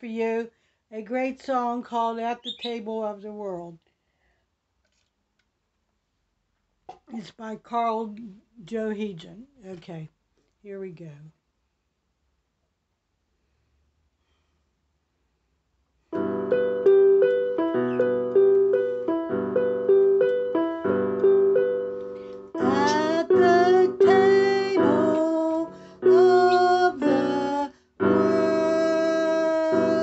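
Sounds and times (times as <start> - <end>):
piano chords: 16.2 - 30.0.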